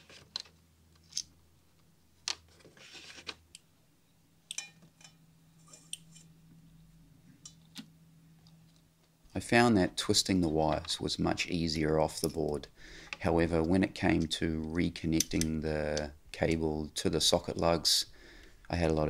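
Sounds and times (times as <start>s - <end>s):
wire clicking and rustling: 4.4s - 6.3s.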